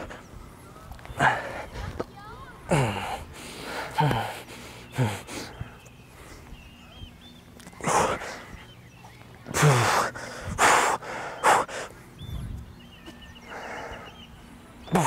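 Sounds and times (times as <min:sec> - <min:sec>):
man breathing out hard: 0:02.7 - 0:06.5, 0:09.5 - 0:11.9
man grunting: 0:09.5 - 0:10.2.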